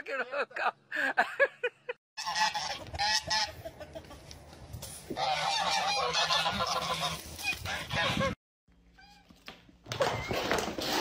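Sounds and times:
geese honking: 0:02.2 - 0:04.2, 0:05.2 - 0:08.4.

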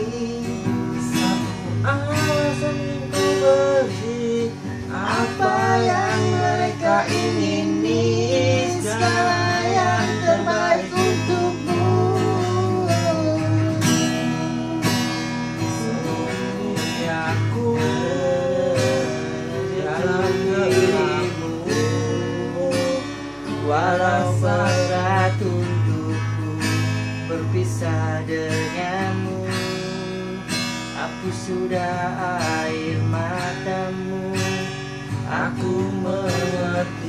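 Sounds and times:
acoustic guitar strumming: 0:00.0 - 0:37.0
man singing: 0:00.0 - 0:37.0.

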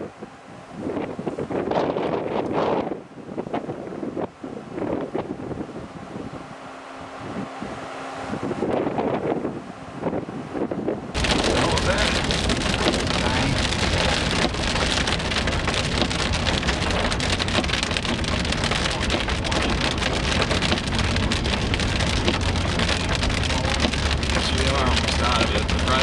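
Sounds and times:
vehicle drone on road: 0:00.0 - 0:26.0
rain pattering on vehicle roof: 0:11.1 - 0:26.0.

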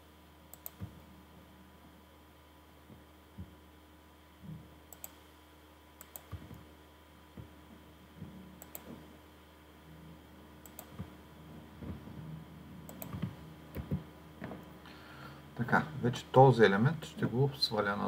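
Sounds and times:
faint steady hum: 0:00.0 - 0:18.0
computer mouse clicking: 0:00.5 - 0:01.0, 0:04.9 - 0:05.2, 0:06.0 - 0:06.7, 0:08.6 - 0:09.0, 0:10.6 - 0:11.1, 0:12.9 - 0:14.0.

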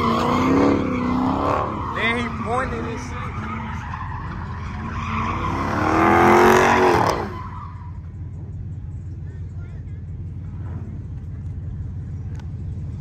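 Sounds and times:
car engine revving: 0:00.0 - 0:13.0
tyres skidding: 0:00.0 - 0:13.0
steady low rumble: 0:07.8 - 0:13.0.

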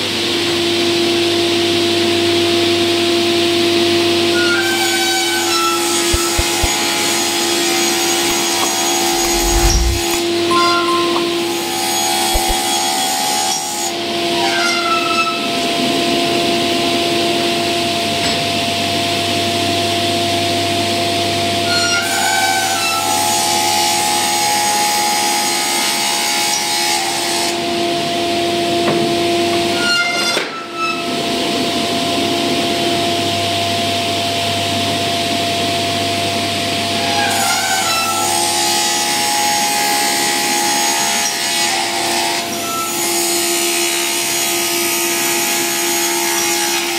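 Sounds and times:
panel saw cutting: 0:04.4 - 0:10.2, 0:11.4 - 0:13.9.

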